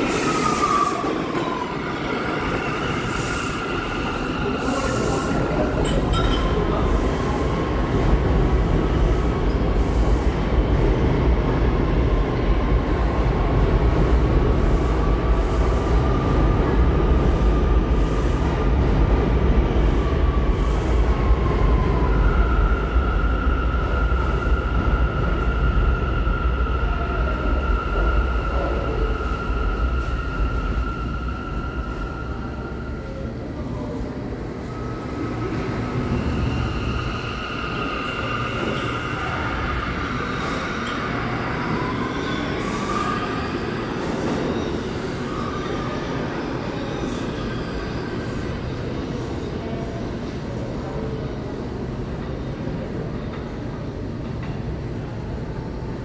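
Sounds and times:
subway train rumble: 0.0 - 56.0.

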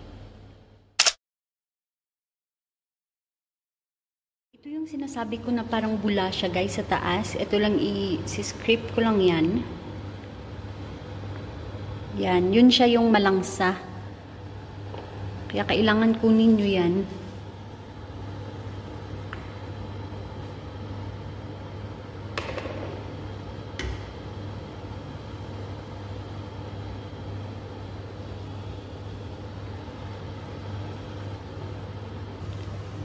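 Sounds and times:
food boiling in a saucepan: 14.0 - 33.0.

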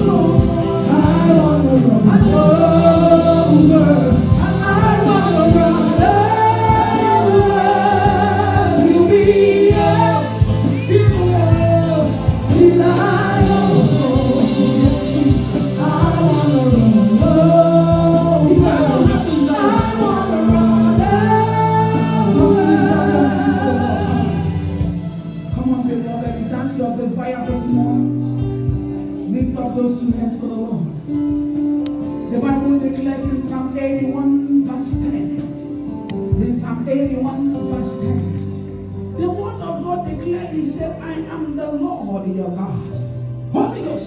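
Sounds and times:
woman singing gospel: 0.0 - 24.9
steady percussion beat: 0.0 - 26.6.

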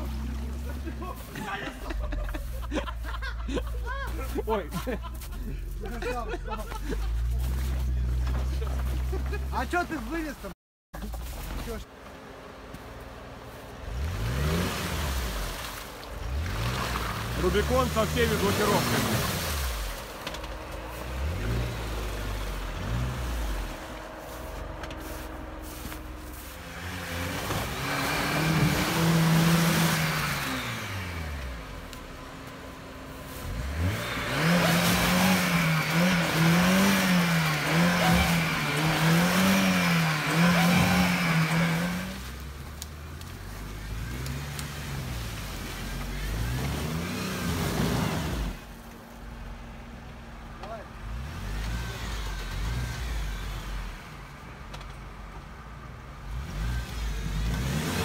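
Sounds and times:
off-road engines revving: 0.0 - 58.0
wheels spinning in mud: 13.4 - 48.9.

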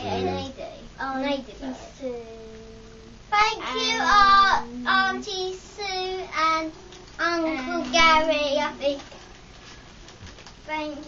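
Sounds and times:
girl singing: 2.2 - 9.1.

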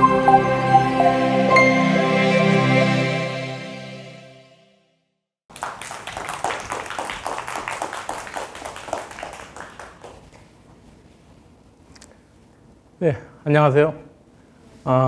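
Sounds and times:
intro music: 0.0 - 4.7
audience applauding: 5.5 - 10.6.

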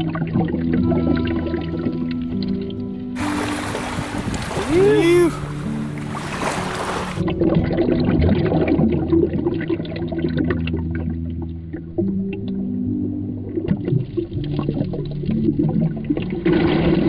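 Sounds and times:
low held music notes: 0.0 - 9.2
muffled underwater wash: 0.0 - 17.0
small underwater clicks and crackles: 7.2 - 17.0.

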